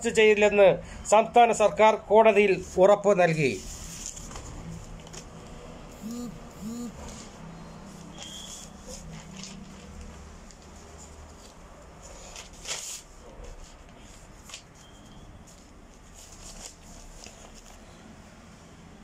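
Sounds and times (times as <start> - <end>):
newspaper pages rustling: 3.6 - 5.7, 7.0 - 17.9.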